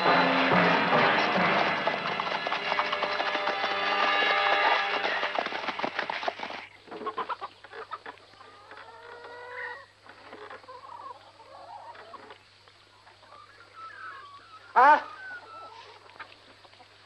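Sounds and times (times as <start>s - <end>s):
crackling clatter: 0.0s - 6.8s
chickens clucking: 0.1s - 17.0s.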